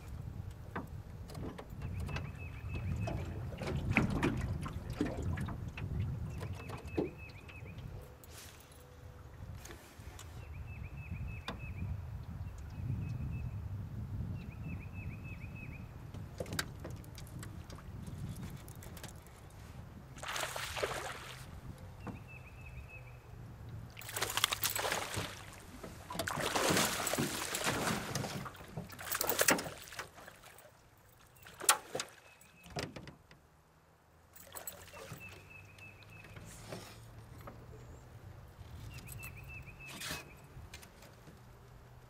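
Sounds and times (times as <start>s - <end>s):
fish splashing at water surface: 20.2s - 21.5s, 24.0s - 30.6s.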